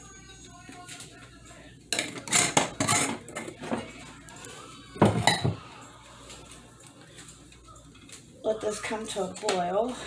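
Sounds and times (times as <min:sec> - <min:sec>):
saucepan scraping clatters: 0:02.0 - 0:04.0.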